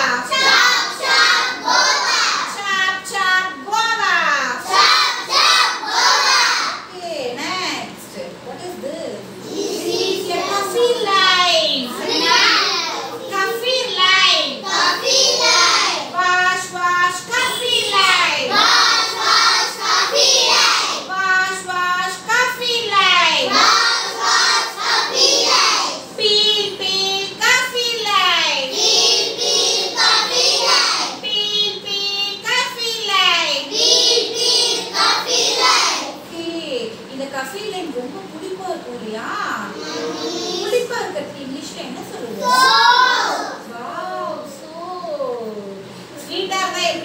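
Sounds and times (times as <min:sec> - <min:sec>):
young children singing in unison: 0:18.5 - 0:21.0, 0:23.5 - 0:26.0, 0:28.8 - 0:31.2, 0:33.8 - 0:36.1.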